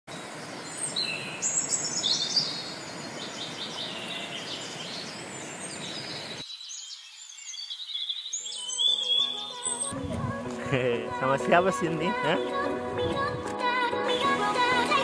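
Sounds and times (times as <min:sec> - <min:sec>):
birds chirping and whistling: 0:00.7 - 0:10.0.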